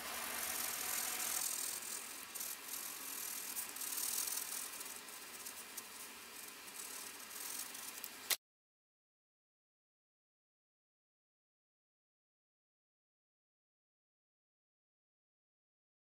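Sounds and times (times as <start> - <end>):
pencil scratching on paper: 0.0 - 8.2.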